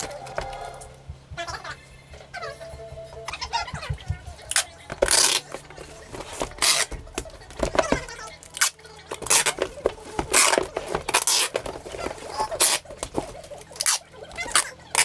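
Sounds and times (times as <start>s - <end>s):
shrink-wrapped box rustling: 4.4s - 15.0s.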